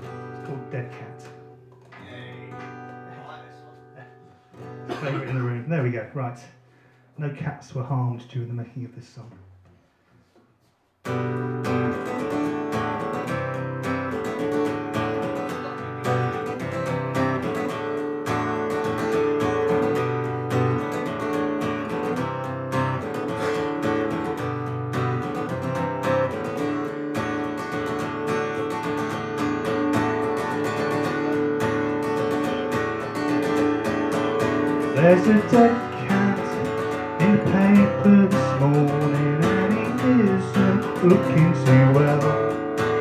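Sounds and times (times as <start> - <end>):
guitar strummed: 0.0 - 5.7, 11.1 - 43.0.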